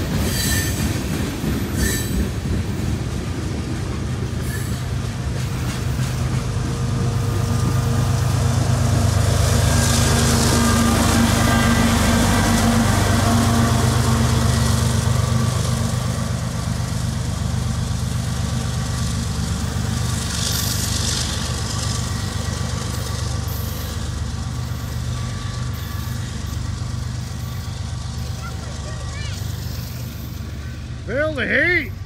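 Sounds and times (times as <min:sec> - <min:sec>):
diesel locomotive engine drone: 0:00.0 - 0:32.0
train wheels on rails: 0:00.0 - 0:32.0.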